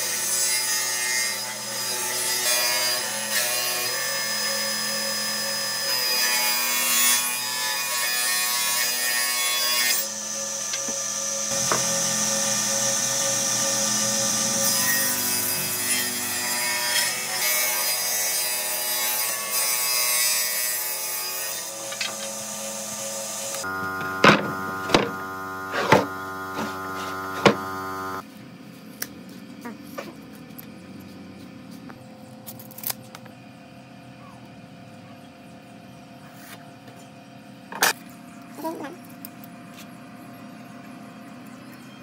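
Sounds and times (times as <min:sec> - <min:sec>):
table saw ripping wood: 0:05.9 - 0:28.2.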